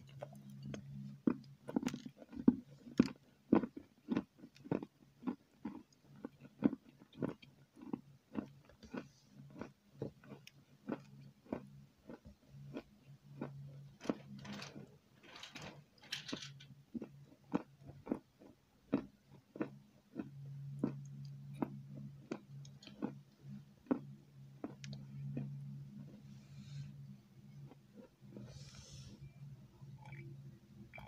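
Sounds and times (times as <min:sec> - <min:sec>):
chewing with mouth closed: 0:00.0 - 0:13.6, 0:17.0 - 0:23.2, 0:23.8 - 0:26.2.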